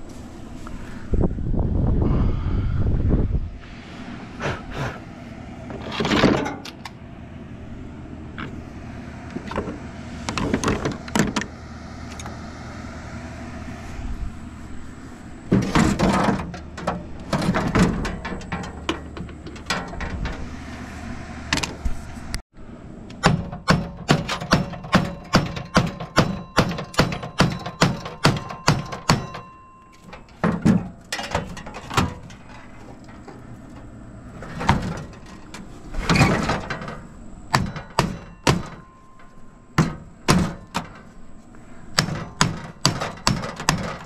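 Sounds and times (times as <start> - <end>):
strikes on metal: 23.2 - 32.3, 36.4 - 41.1, 41.9 - 44.0.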